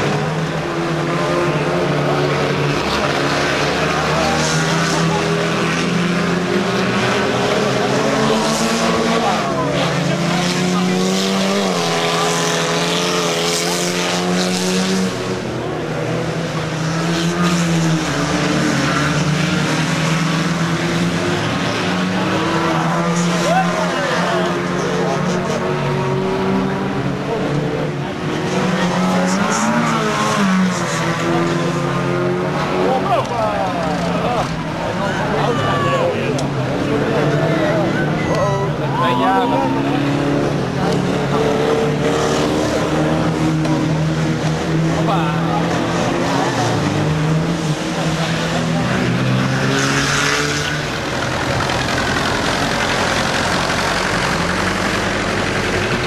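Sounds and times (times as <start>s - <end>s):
racing car engines revving: 0.0s - 56.0s
tractor engine running: 50.9s - 56.0s.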